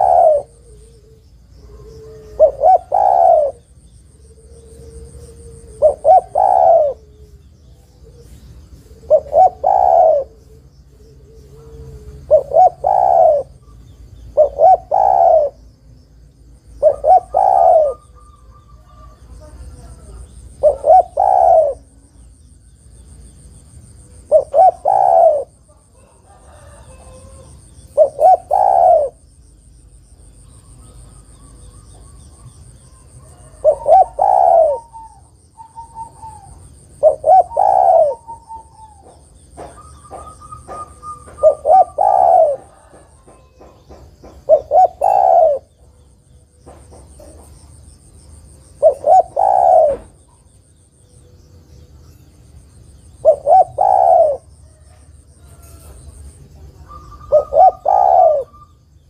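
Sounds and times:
dove cooing: 0:00.0 - 0:15.8, 0:16.7 - 0:22.3, 0:24.0 - 0:29.3, 0:30.2 - 0:47.6, 0:48.4 - 0:50.6, 0:52.9 - 0:58.8.

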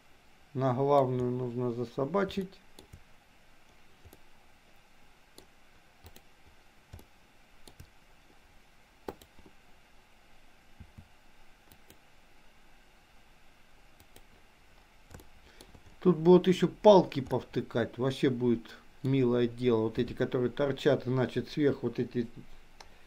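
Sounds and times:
computer mouse and keyboard clicks: 0:02.3 - 0:03.0, 0:03.7 - 0:04.2, 0:05.4 - 0:06.3, 0:06.9 - 0:07.9, 0:09.1 - 0:09.5, 0:14.0 - 0:14.4, 0:15.1 - 0:16.0.

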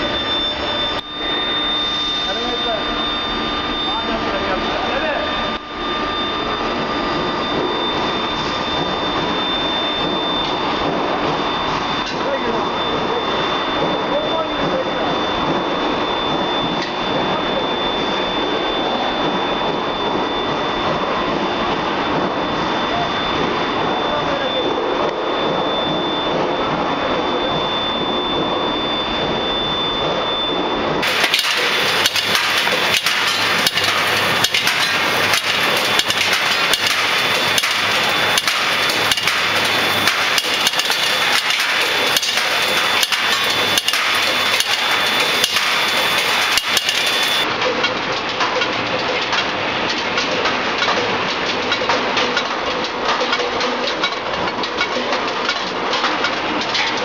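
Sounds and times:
rolling machine running with whine: 0:00.0 - 0:57.0.

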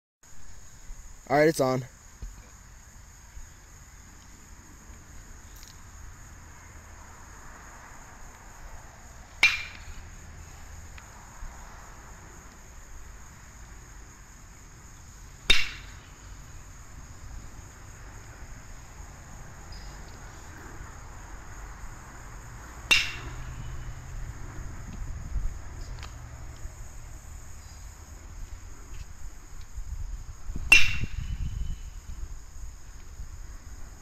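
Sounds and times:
high insect chirping: 0:00.3 - 0:34.0
baseball bat cracking ball: 0:09.3 - 0:10.2, 0:15.4 - 0:16.2, 0:22.7 - 0:23.8, 0:30.6 - 0:31.4.

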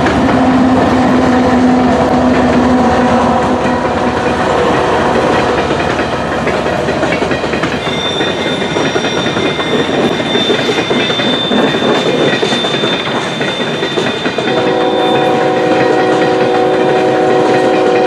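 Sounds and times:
train wheels clattering over rails: 0:00.0 - 0:18.0
train horn: 0:00.3 - 0:05.3, 0:14.0 - 0:18.0
thin high squeal: 0:07.8 - 0:15.4.

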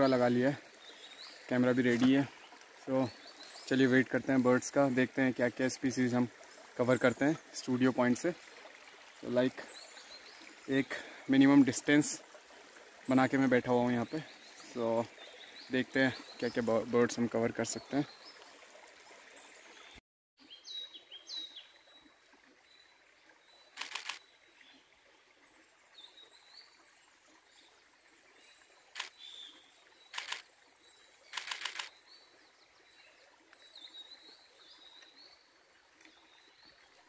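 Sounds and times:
camera shutter clicks: 0:23.8 - 0:24.2, 0:31.4 - 0:31.9
small birds chirping: 0:28.4 - 0:36.8.

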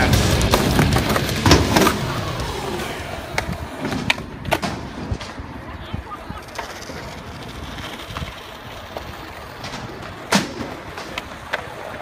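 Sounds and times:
skateboard clacks: 0:00.0 - 0:12.0
skateboard wheels rolling on concrete: 0:00.0 - 0:12.0.

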